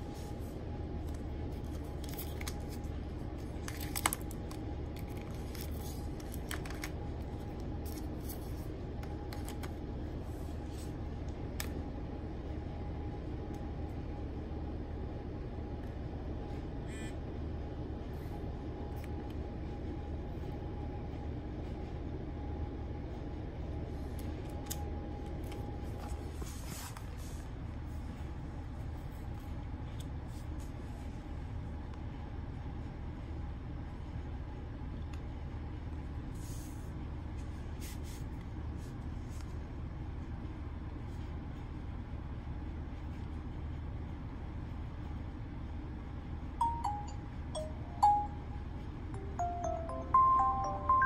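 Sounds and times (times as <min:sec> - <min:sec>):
faint steady whine: 0:00.0 - 0:51.0
steady low hum: 0:00.0 - 0:51.0.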